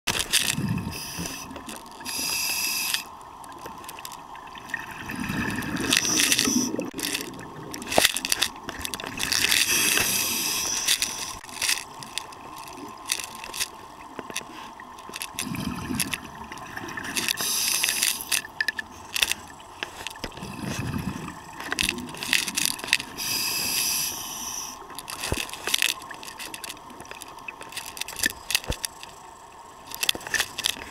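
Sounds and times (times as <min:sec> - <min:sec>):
hiss: 0:00.9 - 0:03.1, 0:09.6 - 0:11.4, 0:17.4 - 0:18.3, 0:23.2 - 0:24.8
camera handling clicks and scraping: 0:25.0 - 0:29.0.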